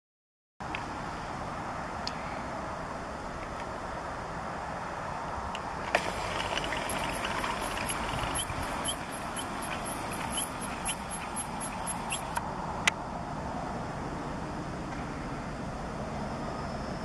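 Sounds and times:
lens zoom motor whirring: 5.9 - 12.4.

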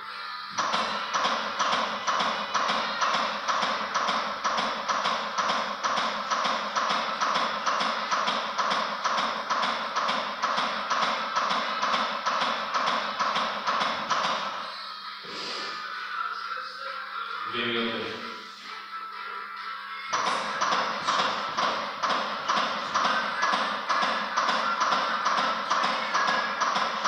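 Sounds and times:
music playing: 0.0 - 27.0
training manikin clicking: 0.6 - 14.6, 20.1 - 27.0.

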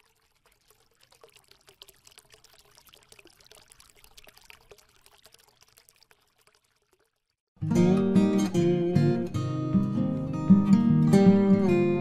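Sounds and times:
water trickling and splashing: 0.0 - 7.6.

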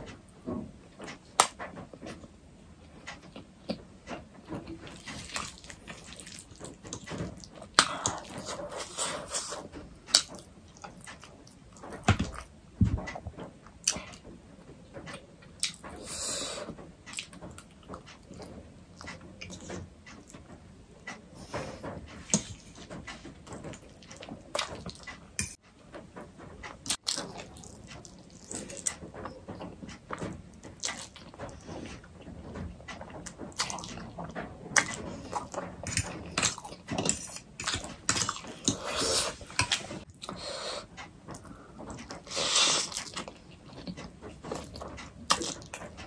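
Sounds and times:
chewing and slurping: 4.6 - 12.5, 26.6 - 46.0.

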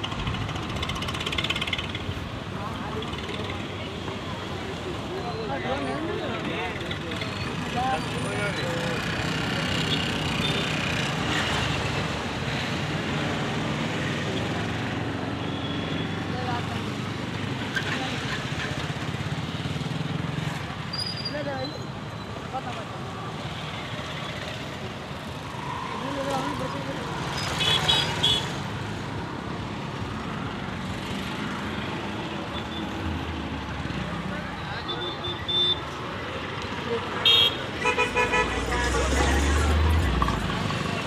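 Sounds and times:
road traffic passing: 0.0 - 41.0
vehicle horn beep: 34.9 - 35.8, 37.2 - 39.3.

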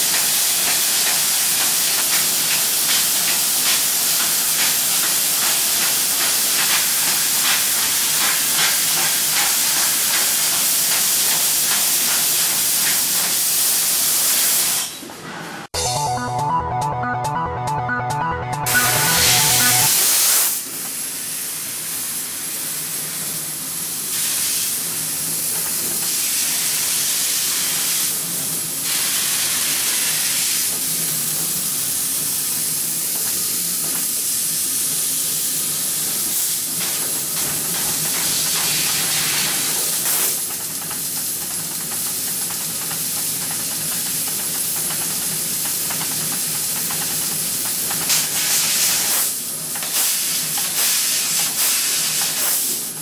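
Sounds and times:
laser cutter gas hiss: 21.2 - 25.0, 26.1 - 28.2, 28.8 - 30.8, 48.0 - 53.0.

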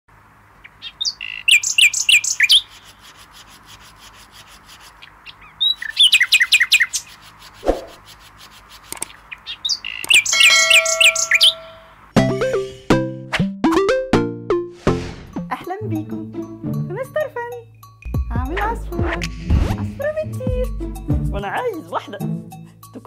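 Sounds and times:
songbirds chirping: 0.1 - 12.1
held tones ringing: 10.2 - 12.0.

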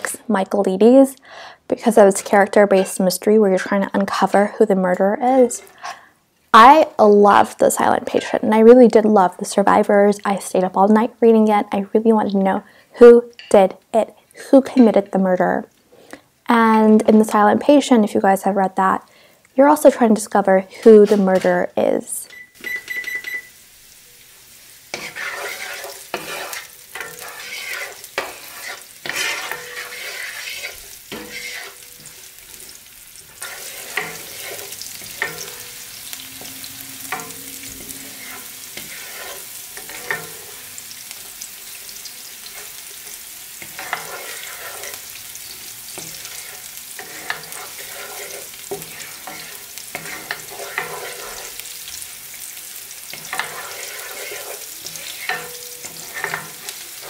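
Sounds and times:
wooden spoon scraping a pan: 1.9 - 3.2, 20.8 - 21.7, 24.9 - 57.0
onion sizzling in oil: 16.4 - 57.0.

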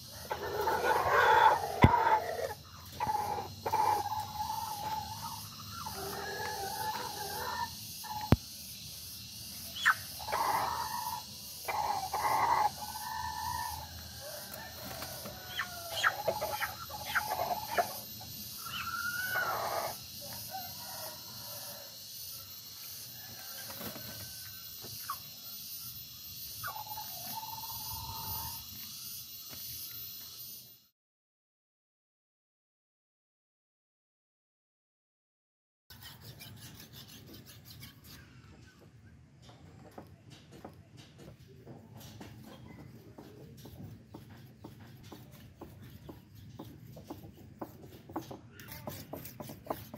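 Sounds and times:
chickens squawking and clucking: 0.0 - 8.4, 9.6 - 21.9, 23.1 - 25.4, 26.6 - 28.7.

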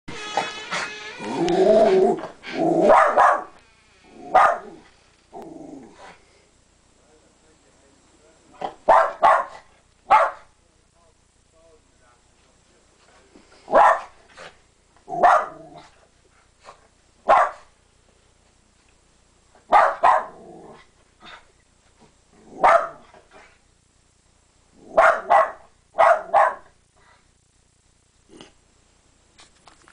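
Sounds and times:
dog barking: 2.8 - 3.6, 4.3 - 4.8, 8.8 - 10.5, 13.7 - 14.2, 15.2 - 15.6, 17.3 - 17.7, 19.7 - 20.4, 22.6 - 23.1, 24.9 - 26.7.

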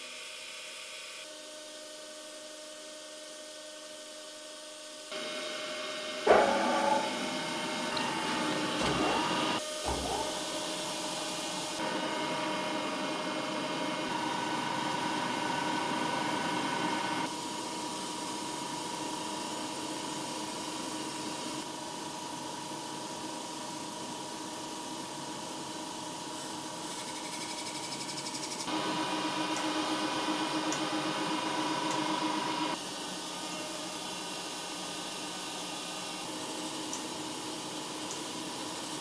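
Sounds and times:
grinder humming with whine: 0.0 - 22.8.

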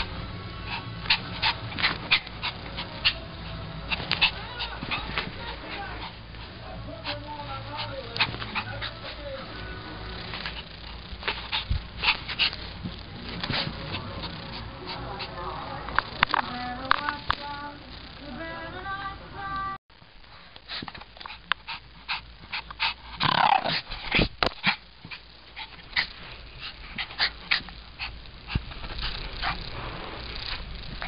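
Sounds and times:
small dog growling and snarling: 0.7 - 6.3, 7.0 - 15.3, 21.3 - 31.0.

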